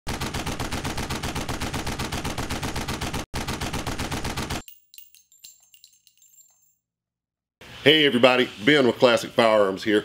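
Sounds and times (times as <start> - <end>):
rapid automatic gunfire: 0.1 - 4.6
faint metallic clinks: 4.6 - 6.8.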